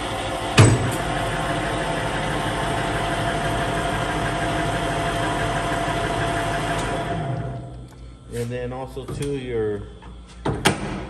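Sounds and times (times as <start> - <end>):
lathe running and winding down: 0.0 - 7.7
faint steady whine: 0.0 - 11.0.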